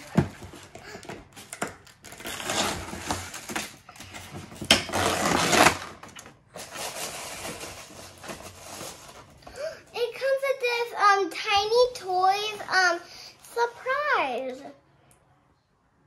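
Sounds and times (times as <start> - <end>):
packaging crinkling and tearing: 0.0 - 9.4.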